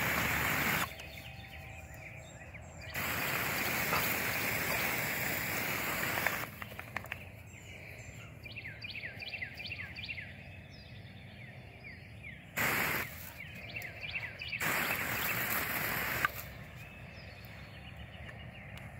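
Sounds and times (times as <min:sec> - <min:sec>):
garden hose spray hissing: 0:00.0 - 0:00.9, 0:03.0 - 0:06.6, 0:12.6 - 0:13.4, 0:14.6 - 0:16.6.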